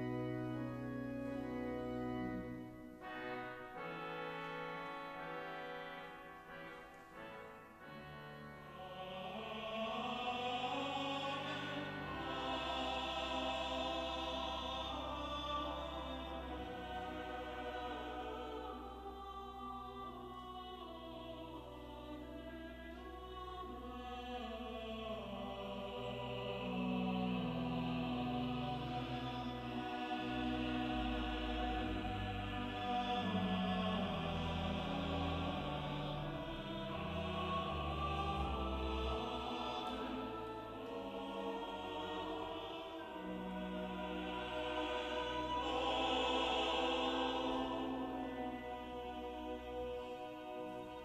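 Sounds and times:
choir singing: 0.0 - 51.0
church organ chords: 0.0 - 51.0.

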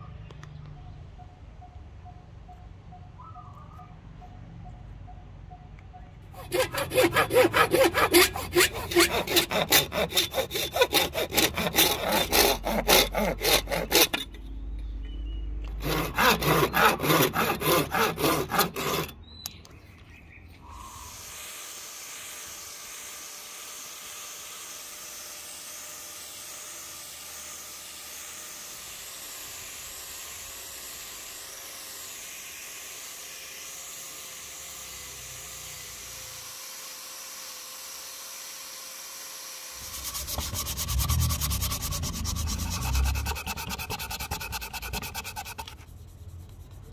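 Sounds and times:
saw cutting wood: 6.3 - 15.0, 15.6 - 19.6, 20.6 - 46.9
sandpaper rubbing on wood: 6.4 - 14.4, 15.8 - 19.1, 39.8 - 46.9.

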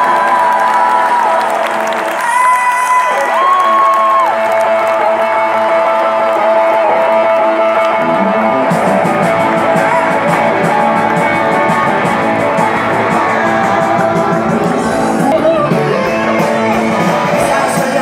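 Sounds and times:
rock band playing: 3.4 - 18.0
electric guitar bending notes: 4.4 - 18.0.

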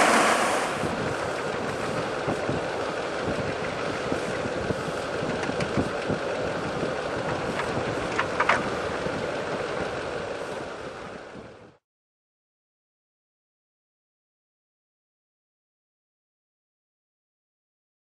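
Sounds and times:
wind on microphone: 0.0 - 10.0
rushing machine noise: 0.0 - 11.5.

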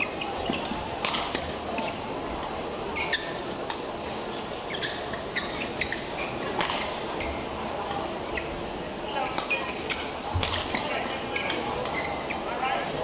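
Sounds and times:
shoe squeaks on court: 0.0 - 0.8, 2.9 - 3.5, 4.7 - 7.6, 9.2 - 12.6
hall background noise: 0.0 - 13.0
racket smacking shuttlecock: 1.0 - 1.5, 6.6 - 6.9, 10.4 - 10.8.

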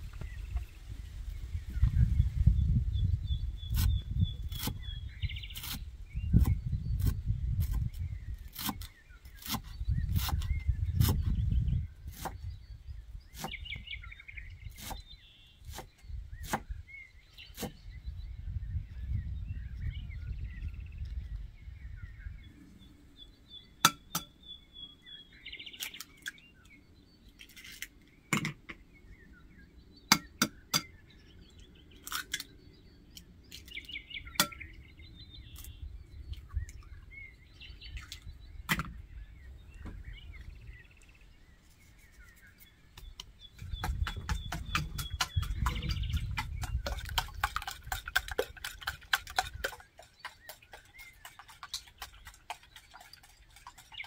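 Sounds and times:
small birds chirping: 0.0 - 54.0
knife chopping on wooden board: 15.7 - 16.7, 43.7 - 49.8.

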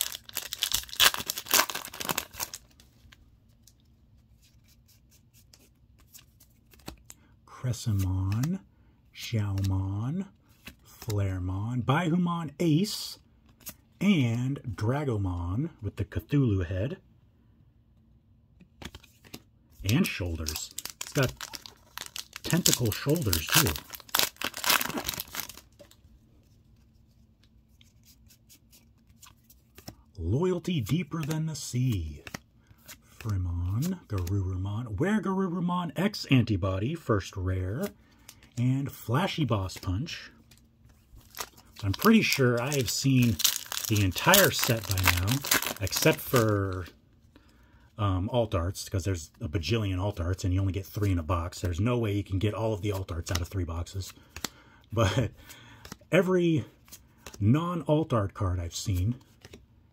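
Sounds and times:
cards ticking: 0.0 - 2.7, 18.6 - 26.0, 30.6 - 34.4, 37.8 - 46.9, 52.4 - 56.1, 56.8 - 57.4
foil wrapper tearing: 0.0 - 2.7, 20.0 - 25.6, 41.2 - 46.7
cards sliding and flipping: 0.0 - 7.2, 7.9 - 8.5, 18.6 - 30.0, 30.7 - 34.4, 52.9 - 54.6, 55.4 - 56.1, 56.8 - 57.4, 58.8 - 59.6.

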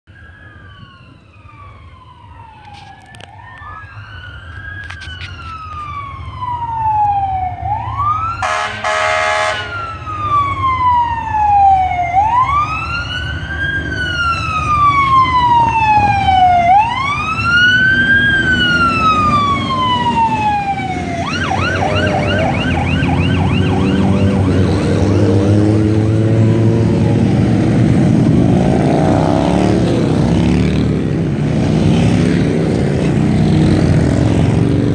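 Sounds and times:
fire engine siren wailing: 0.1 - 34.9
horn blast: 8.4 - 9.7
motorcycle engines rumbling: 9.6 - 34.9.

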